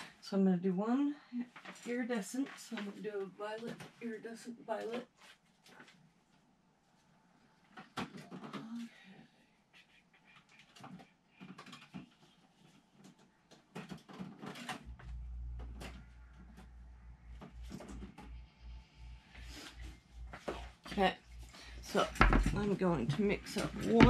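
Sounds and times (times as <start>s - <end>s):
paint supplies knocking and rattling: 10.6s - 14.9s, 21.9s - 24.0s
low hum: 14.7s - 23.5s.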